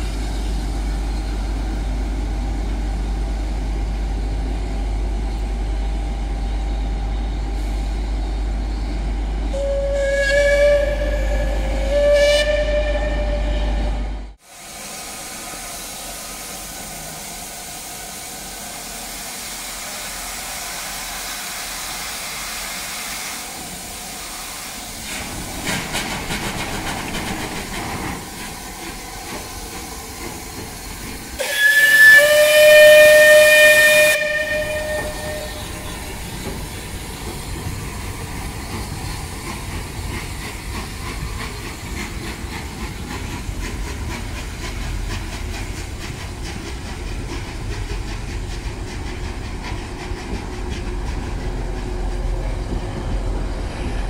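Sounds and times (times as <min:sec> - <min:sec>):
steam hiss: 0:07.4 - 0:08.2, 0:14.3 - 0:54.0
steam locomotive whistle: 0:09.5 - 0:14.3, 0:31.4 - 0:36.3.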